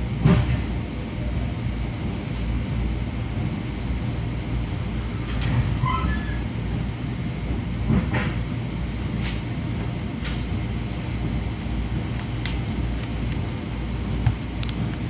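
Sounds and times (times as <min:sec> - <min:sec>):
train rumble: 0:00.0 - 0:15.0
train clicks and knocks: 0:00.1 - 0:00.8, 0:04.7 - 0:15.0.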